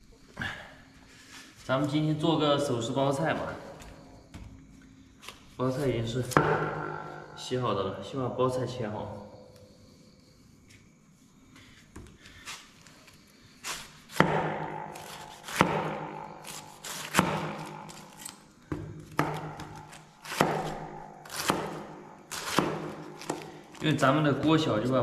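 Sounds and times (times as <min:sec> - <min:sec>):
knife slicing cabbage: 0:12.3 - 0:18.4, 0:19.0 - 0:24.0.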